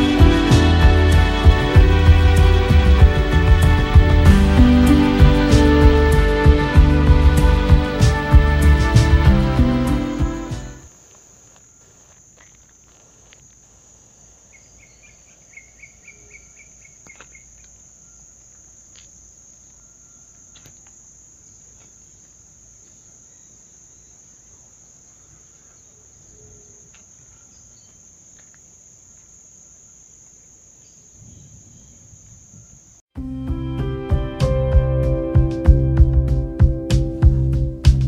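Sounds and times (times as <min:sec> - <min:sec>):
insects trilling: 0:09.3 - 0:33.1
bird chirping: 0:14.5 - 0:19.0, 0:22.9 - 0:28.4.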